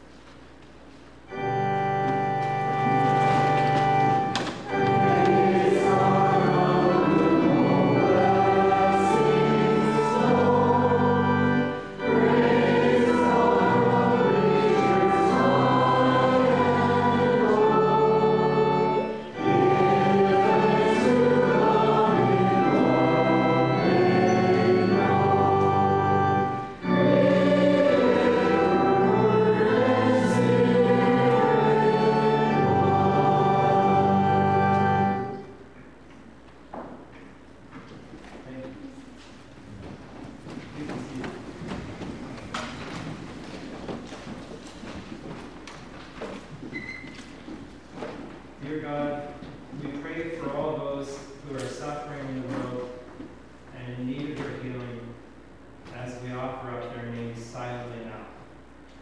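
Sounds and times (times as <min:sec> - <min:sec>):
keyboard accompaniment: 0:00.0 - 0:38.2
congregation singing a hymn: 0:01.3 - 0:36.1, 0:38.4 - 0:58.7.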